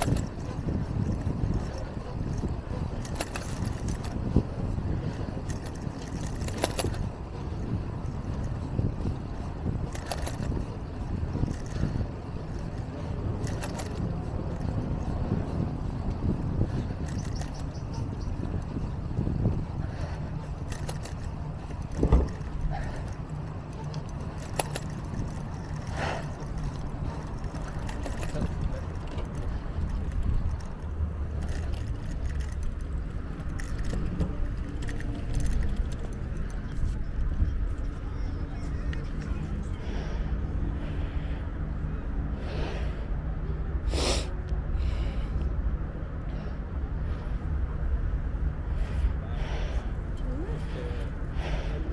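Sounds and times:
light clicks and rattles: 0.0s - 40.1s
low rumble of wind and road: 0.0s - 51.9s.

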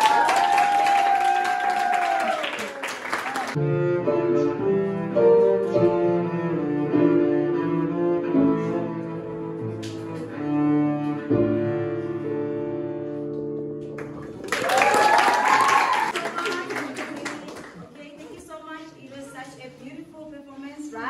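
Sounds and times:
people clapping: 0.0s - 3.6s, 13.8s - 18.5s
cello slow melody: 3.6s - 13.9s.

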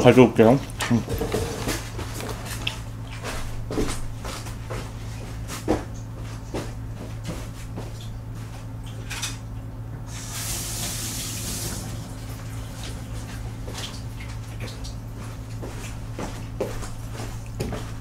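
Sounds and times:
steady low hum: 0.0s - 18.0s
water tap running: 10.1s - 15.0s.

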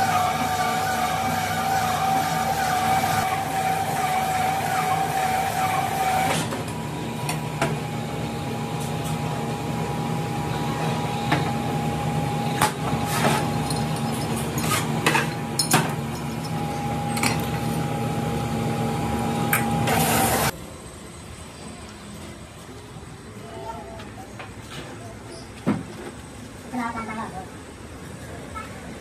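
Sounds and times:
boring machine droning: 0.0s - 21.8s.

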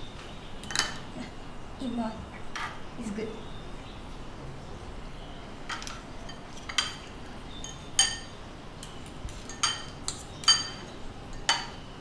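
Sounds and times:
cutlery clinking on ceramic: 5.7s - 11.8s.

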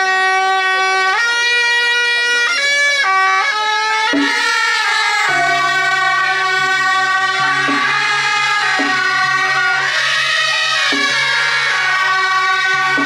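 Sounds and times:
shawm playing temple music: 0.0s - 13.0s
low sustained note: 4.2s - 13.0s.

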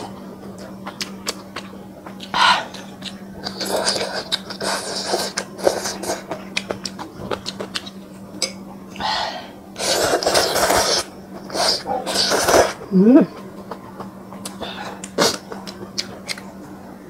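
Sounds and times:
chewing: 0.5s - 8.6s, 9.8s - 16.6s
person slurping noodles: 9.8s - 12.8s.

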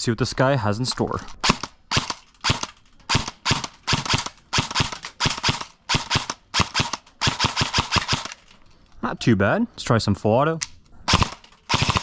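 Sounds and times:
airsoft rifle firing single shots: 1.4s - 8.4s, 11.1s - 12.0s.

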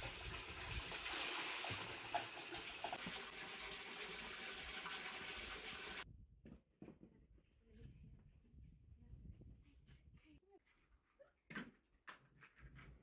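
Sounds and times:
metal kettle being filled: 0.0s - 6.0s
water gushing into a tank: 0.0s - 6.0s.

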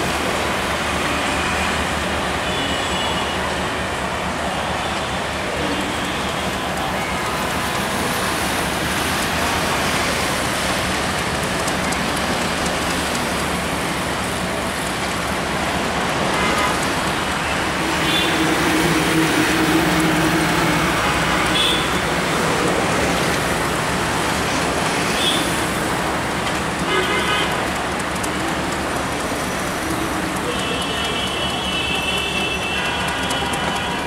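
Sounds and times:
road traffic: 0.0s - 34.0s.

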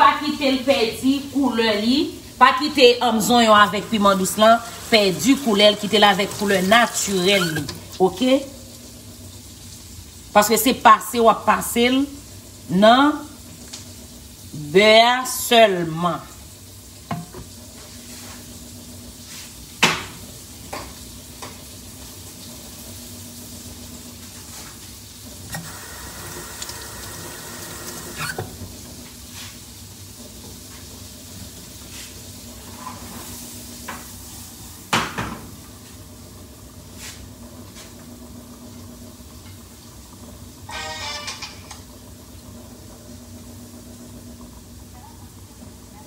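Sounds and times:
vegetables sizzling in butter: 0.0s - 46.0s
utensil scraping a pan: 6.0s - 7.9s.

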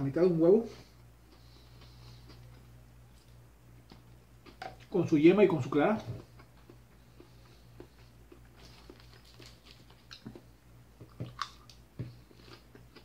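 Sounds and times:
person chewing salad: 1.2s - 4.9s, 6.2s - 13.0s.

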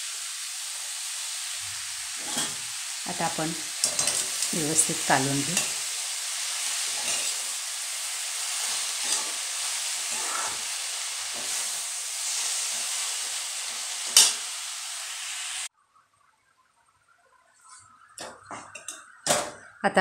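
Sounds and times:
spinach sizzling in hot oil: 0.0s - 15.7s
metal spatula scraping pan: 2.2s - 5.8s, 6.8s - 7.5s, 8.5s - 12.8s.

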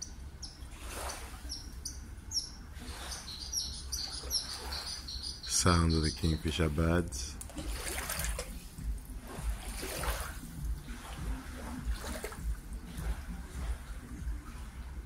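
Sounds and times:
water lapping against boats: 0.0s - 15.0s.

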